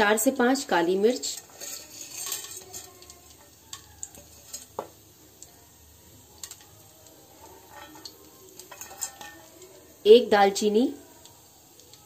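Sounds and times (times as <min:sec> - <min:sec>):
ghee sizzling in a pot: 0:00.0 - 0:12.0
light ticks and pops: 0:11.2 - 0:12.0.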